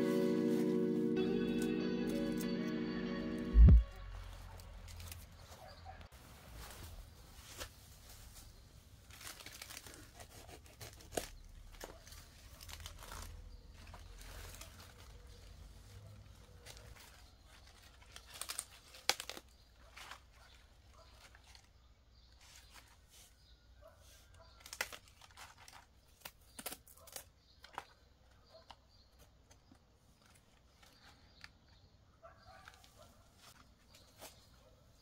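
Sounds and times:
lettuce leaves snapping: 9.0s - 15.5s, 16.5s - 20.4s, 24.5s - 28.0s
lettuce tearing and rustling: 9.0s - 23.0s, 24.5s - 28.0s.

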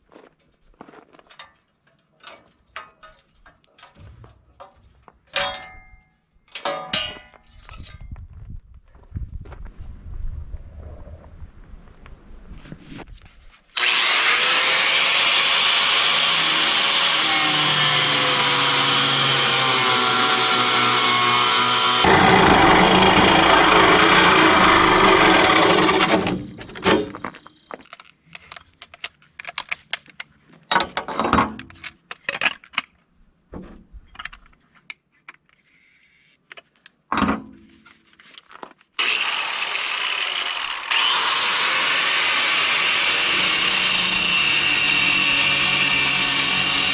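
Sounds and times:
metal clanks and knocks: 1.2s - 8.2s, 25.4s - 28.0s, 30.7s - 32.6s
angle grinder cutting metal: 13.7s - 27.7s, 39.0s - 46.9s.

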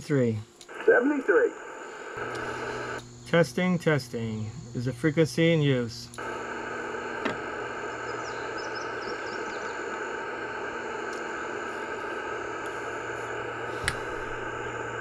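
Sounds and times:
radio receiver hiss: 0.0s - 15.0s
faint bird chirps: 8.0s - 10.0s.

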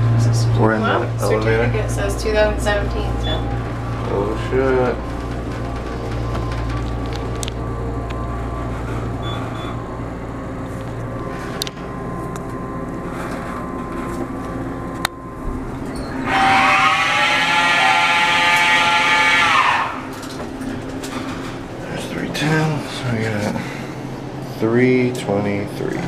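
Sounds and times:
elevator humming: 0.0s - 26.0s
loud high squeal: 3.0s - 6.8s, 8.6s - 10.0s, 15.7s - 20.4s.

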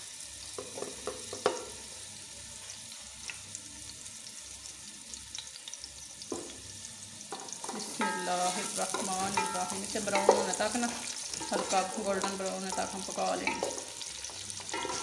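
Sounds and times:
onions sizzling in oil: 0.0s - 15.0s
wooden spoon knocking on pot: 8.9s - 10.6s, 11.4s - 13.9s.

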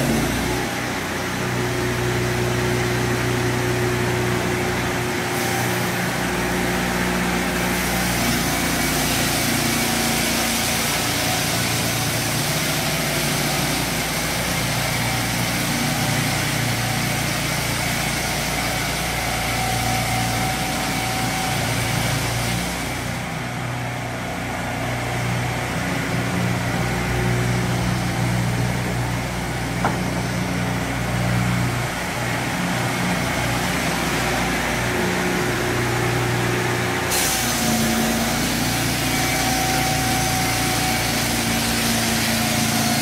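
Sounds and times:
sawmill engine running: 0.0s - 43.0s
circular saw blade cutting log: 37.0s - 43.0s.

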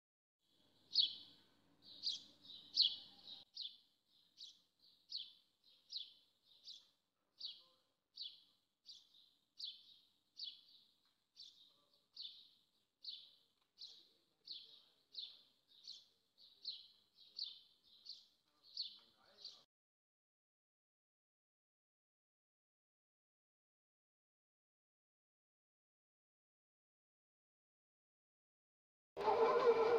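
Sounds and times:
small bird chirping: 0.8s - 19.7s.

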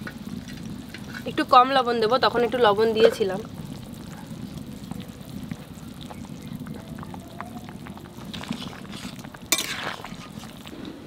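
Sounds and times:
curry bubbling in a pan: 0.0s - 11.0s
spatula scraping pan: 8.2s - 10.7s.

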